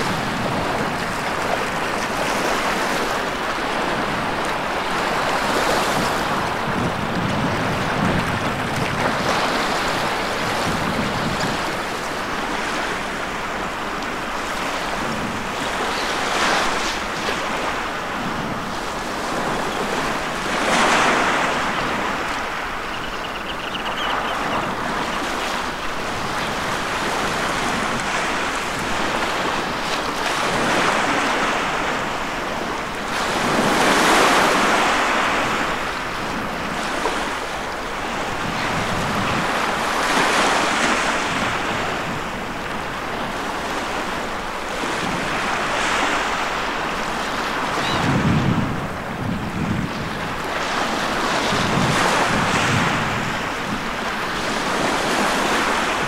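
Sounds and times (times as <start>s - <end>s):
small waves breaking on shore: 0.0s - 56.0s.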